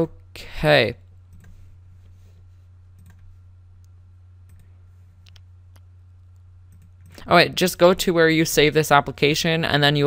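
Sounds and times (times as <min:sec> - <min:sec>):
low hum: 0:00.0 - 0:08.1
computer mouse clicks: 0:01.3 - 0:01.7, 0:03.0 - 0:07.3.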